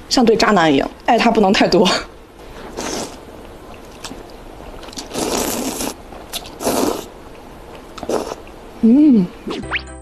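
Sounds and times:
person slurping noodles: 2.6 - 3.2, 4.8 - 7.1, 8.0 - 8.4.

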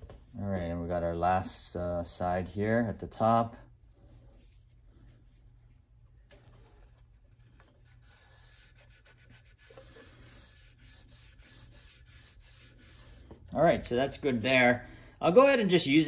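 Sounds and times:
paper towel rubbing on metal track: 7.3 - 13.5.

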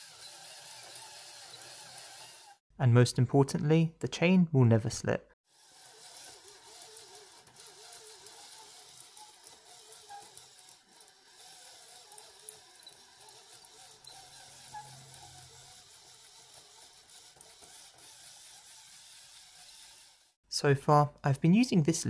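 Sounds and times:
chain and gears clicking: 0.0 - 2.6, 5.6 - 20.3
electric motor whirring: 0.0 - 2.6, 5.5 - 20.4.

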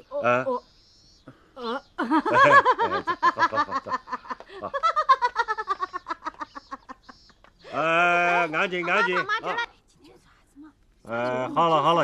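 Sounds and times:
person laughing: 2.0 - 9.7.

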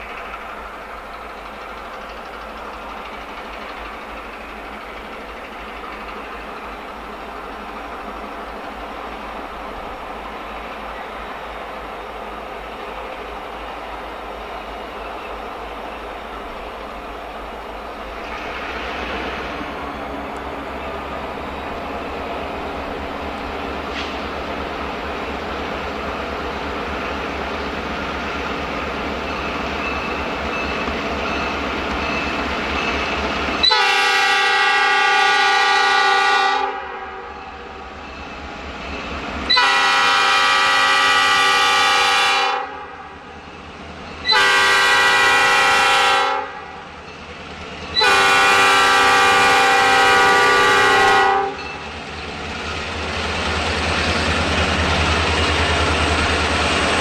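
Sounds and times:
locomotive horn blasts: 33.6 - 37.3, 39.5 - 43.2, 44.3 - 46.8, 48.0 - 51.6.

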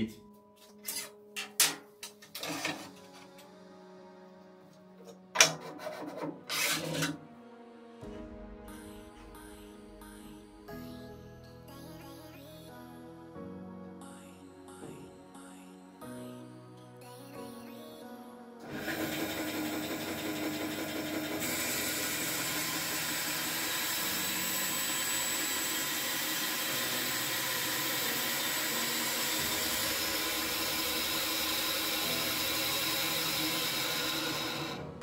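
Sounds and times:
band saw cutting wood: 5.0 - 7.2, 18.7 - 35.0.

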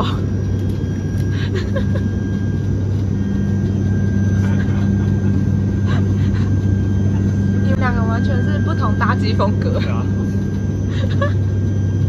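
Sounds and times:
airliner engine drone in cabin: 0.0 - 12.0
thin high whine: 0.0 - 12.0.

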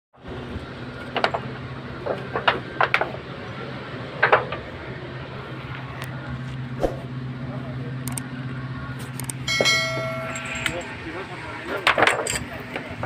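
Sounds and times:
steady low hum: 0.2 - 13.0
metallic clinks and knocks: 9.5 - 10.9.

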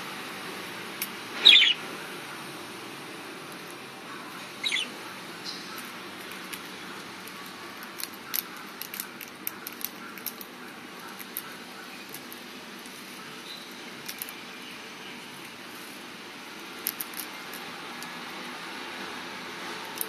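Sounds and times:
steady background hiss: 0.0 - 20.0
birds' beaks clicking on leaves: 3.5 - 15.9, 16.5 - 18.6.

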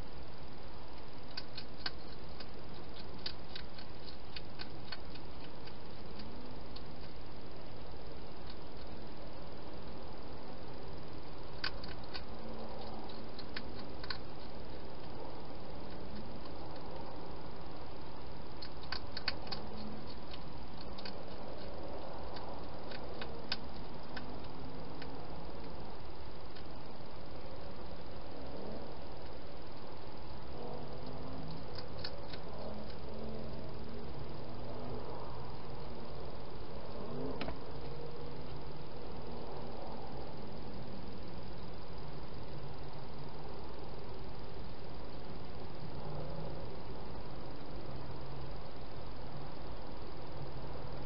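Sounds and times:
steady hiss: 0.0 - 51.0
hedgehog crunching food: 0.9 - 26.8, 27.4 - 34.4.

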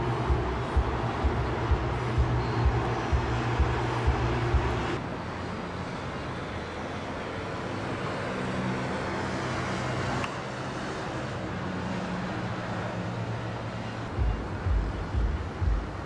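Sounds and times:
low thumps: 0.0 - 5.0, 14.2 - 16.0
low traffic rumble: 0.0 - 16.0.

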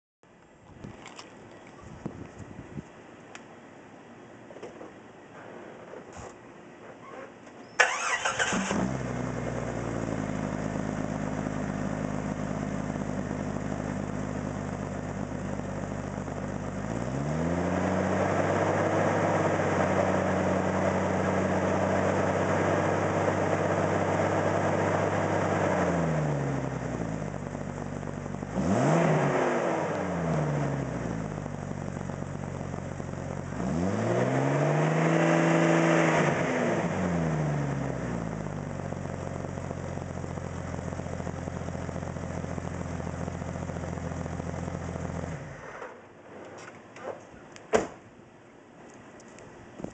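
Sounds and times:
car engine exhaust revving and idling: 7.9 - 45.6.

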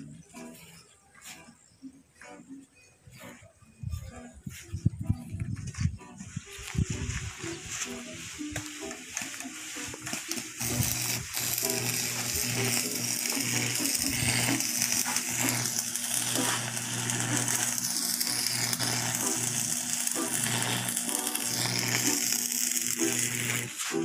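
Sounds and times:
electric arc crackling and sizzling: 6.5 - 24.0
welding machine low hum: 8.7 - 24.0.

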